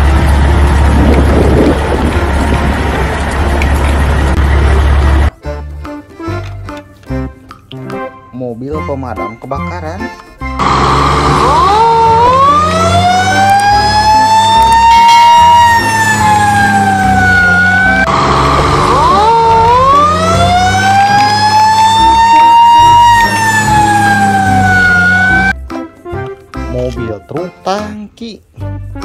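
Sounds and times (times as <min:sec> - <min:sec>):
fire truck siren wailing: 0:00.0 - 0:05.3, 0:10.5 - 0:25.6
low steady rumble: 0:00.0 - 0:05.3.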